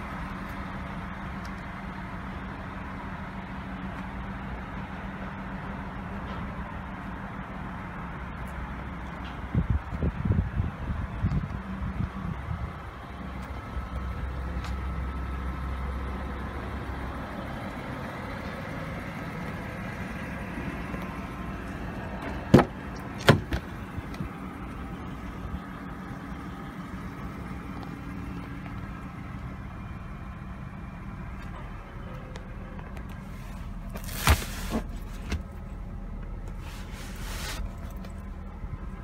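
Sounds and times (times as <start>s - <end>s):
car door latch clicks: 22.2s - 23.7s.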